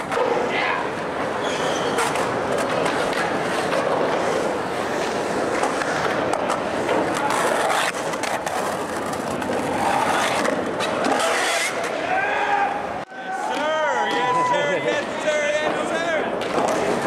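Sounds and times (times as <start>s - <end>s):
skateboard rolling on concrete: 0.0s - 12.1s, 13.4s - 17.0s
skateboard clacks: 1.2s - 12.0s, 14.9s - 17.0s.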